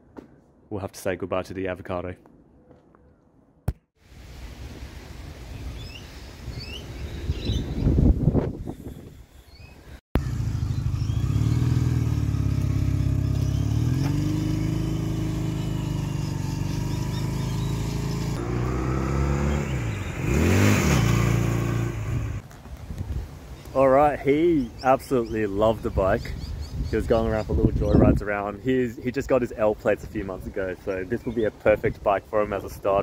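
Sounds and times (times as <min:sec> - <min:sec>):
motorcycle engine running: 0:10.2 - 0:22.4.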